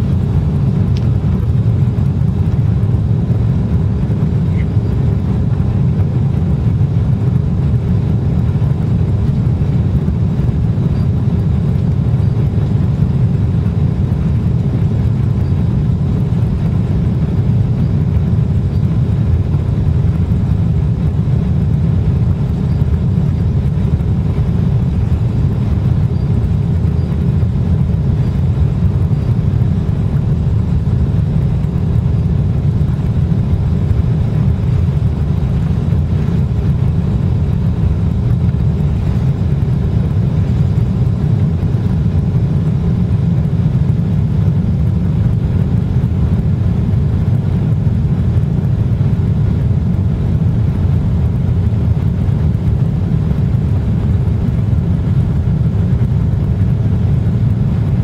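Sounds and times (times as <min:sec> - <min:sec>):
jet engines rumbling: 0:00.0 - 0:58.0.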